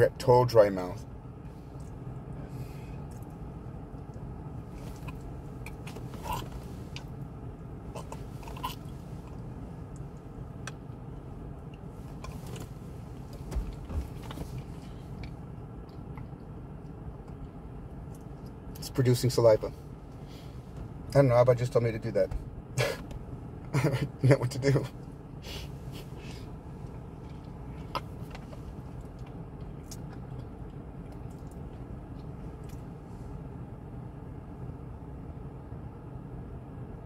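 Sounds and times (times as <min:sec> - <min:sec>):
low hum in car cabin: 0:00.0 - 0:37.0
mouth clicks and wet smacking: 0:29.2 - 0:32.8.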